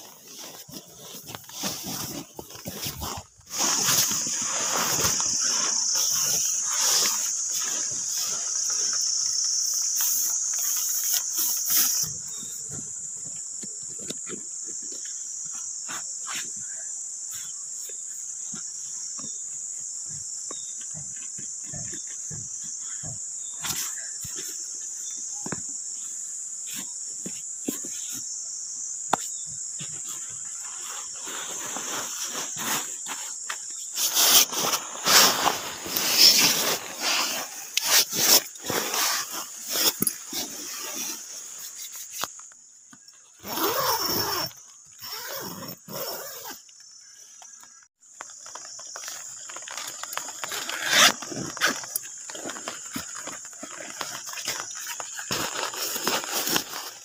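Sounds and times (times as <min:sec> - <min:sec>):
rustling: 0:00.0 - 0:12.6, 0:29.9 - 0:42.6, 0:48.2 - 0:57.0
insects chirring: 0:00.0 - 0:57.0.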